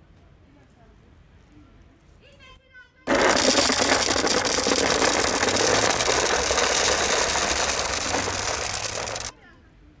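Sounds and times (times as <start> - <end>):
dry kibble pouring into plastic tub: 3.1 - 9.3.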